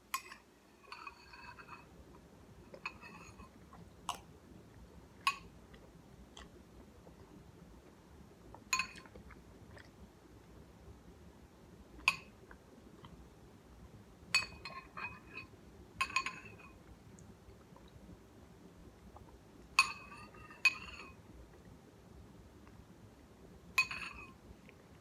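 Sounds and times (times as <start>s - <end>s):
metal spoon clinking on bowl: 0.1s - 1.9s, 2.8s - 3.5s, 14.3s - 16.8s, 19.8s - 21.2s, 23.8s - 24.4s.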